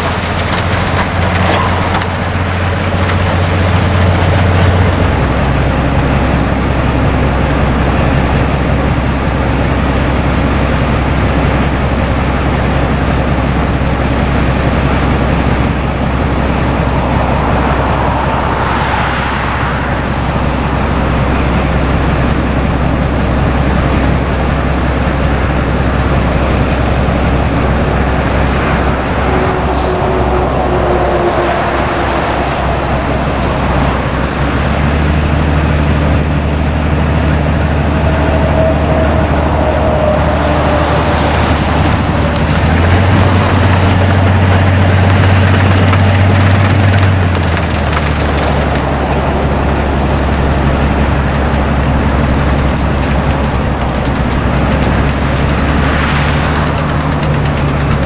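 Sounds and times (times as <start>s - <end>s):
rotary snowplow droning: 0.0s - 58.0s
sweeping whoosh: 16.2s - 21.8s, 28.0s - 35.4s, 55.2s - 57.8s.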